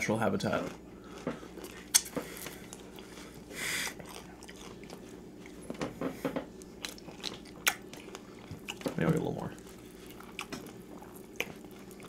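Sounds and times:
people chewing: 0.0 - 12.0
crunching of fried breading: 3.9 - 5.1.

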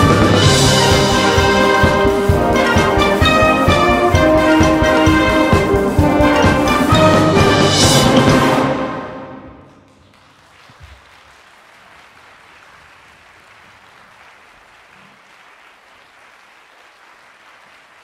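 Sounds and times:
audience applauding: 9.7 - 18.0.

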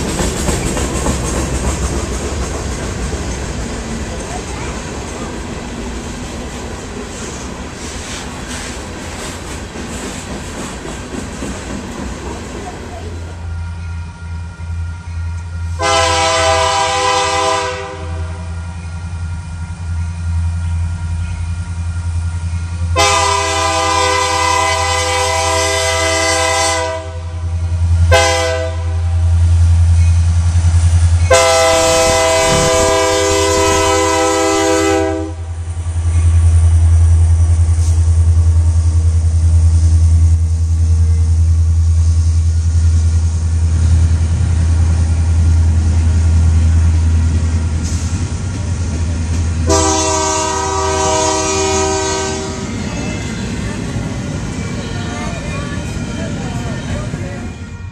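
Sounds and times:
deep locomotive engine rumble: 0.0 - 57.9
train cars rolling on rails: 0.0 - 57.9
locomotive horn blasts: 15.7 - 18.6, 22.9 - 29.2, 31.3 - 35.6, 49.6 - 52.8.

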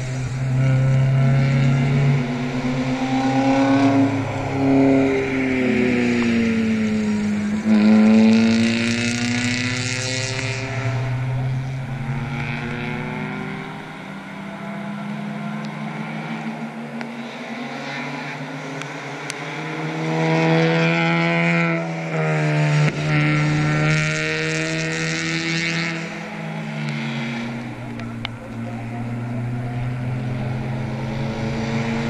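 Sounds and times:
race car engines passing: 0.0 - 32.0.

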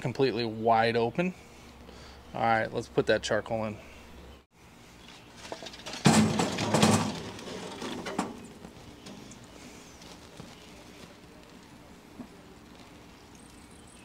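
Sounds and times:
charcoal clattering into metal basket: 5.4 - 9.4.

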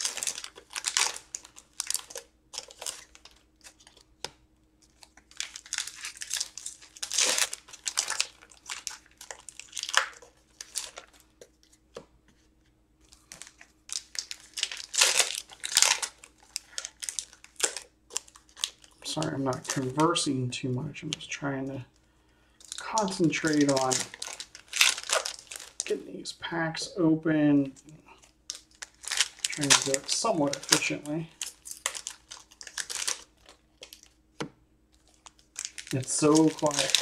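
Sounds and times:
foil wrappers tearing and crinkling: 0.0 - 4.1, 4.8 - 11.8, 13.1 - 20.1, 22.6 - 26.0, 28.2 - 34.2, 34.9 - 37.0.

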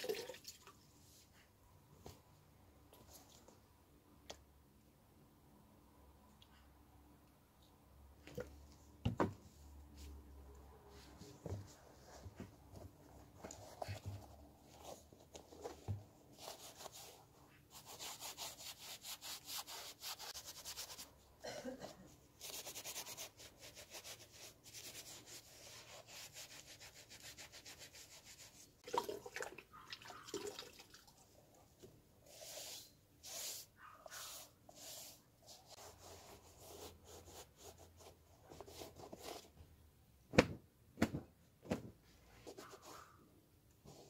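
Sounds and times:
sponge scrubbing a sneaker: 16.4 - 21.1, 32.2 - 39.5.

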